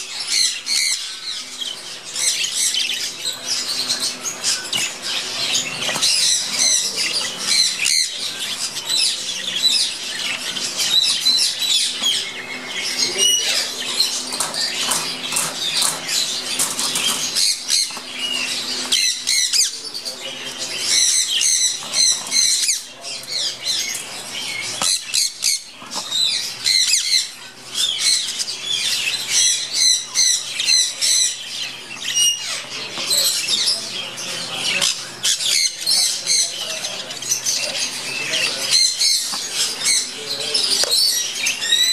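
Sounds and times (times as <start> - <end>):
budgerigars chirping: 0.0 - 41.9
wings flapping: 14.2 - 18.9.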